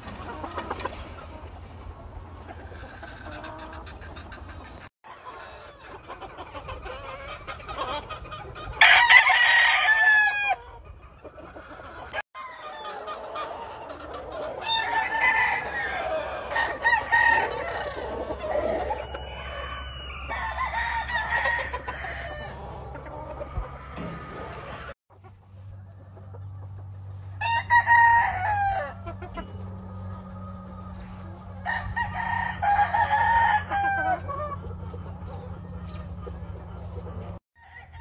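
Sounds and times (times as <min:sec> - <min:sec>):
roosters clucking: 0:00.0 - 0:38.0
roosters crowing: 0:08.7 - 0:10.7, 0:11.6 - 0:25.0, 0:27.2 - 0:38.0.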